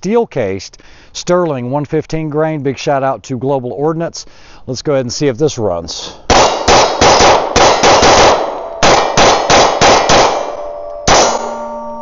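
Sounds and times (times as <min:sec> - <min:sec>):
pistol shots: 0:06.3 - 0:11.7
struck steel ringing: 0:08.6 - 0:12.0.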